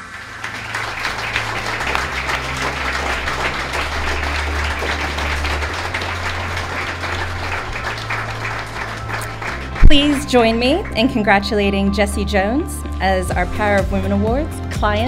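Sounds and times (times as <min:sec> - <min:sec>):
audience applauding: 0:00.0 - 0:11.3
low bass background music: 0:00.0 - 0:15.0.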